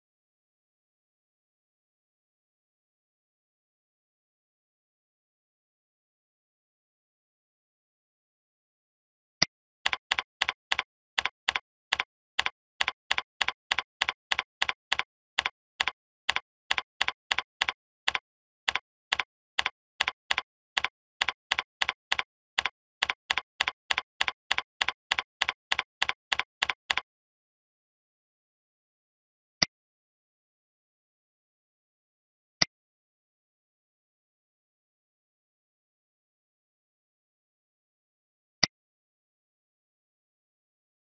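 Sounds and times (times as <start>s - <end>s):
keyboard key clicks: 9.9s - 27.0s.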